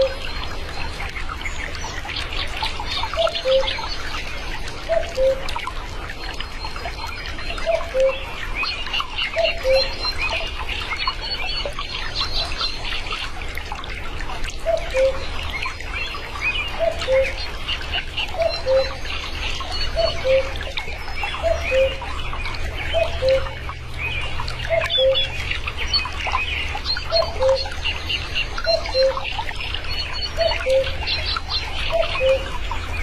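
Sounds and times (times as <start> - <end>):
cuckoo calling: 0.0 - 0.9, 2.9 - 4.1, 4.8 - 5.7, 7.0 - 10.6, 14.6 - 15.7, 16.6 - 23.8, 24.6 - 26.2, 26.9 - 32.7
small birds chirping: 0.0 - 33.0.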